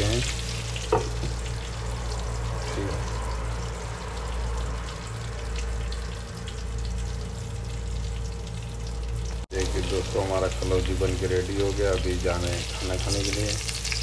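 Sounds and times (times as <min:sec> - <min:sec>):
food sizzling in oil: 0:00.0 - 0:14.0
low hum: 0:00.3 - 0:11.4.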